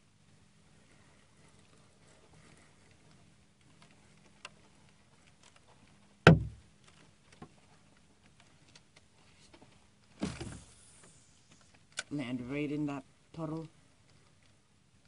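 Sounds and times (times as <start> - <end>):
thump against kayak: 6.3 - 6.6, 10.2 - 10.7.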